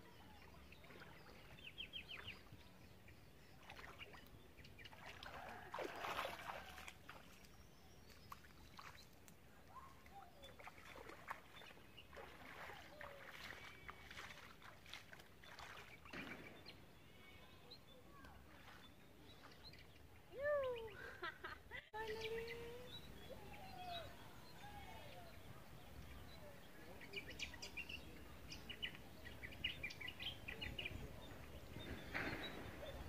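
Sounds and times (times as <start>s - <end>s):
water sloshing from wading: 0.4s - 17.0s.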